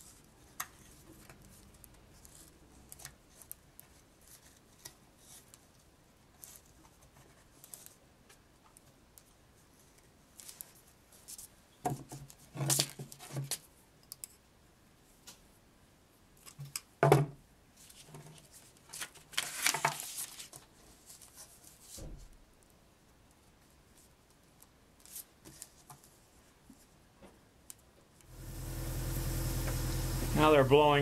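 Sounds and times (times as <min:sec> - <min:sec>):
paper rustling: 0:17.8 - 0:22.0.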